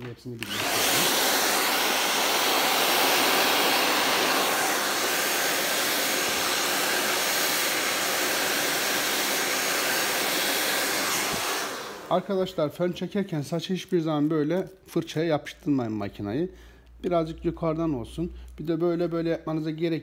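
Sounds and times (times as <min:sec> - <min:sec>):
hair dryer running: 0:00.4 - 0:12.4.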